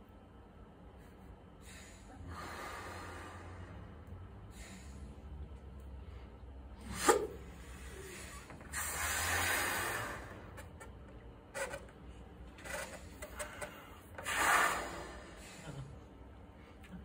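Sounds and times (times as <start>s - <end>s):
small breaths: 1.6s - 10.6s
man blowing into balloon: 6.8s - 10.5s, 14.2s - 15.6s.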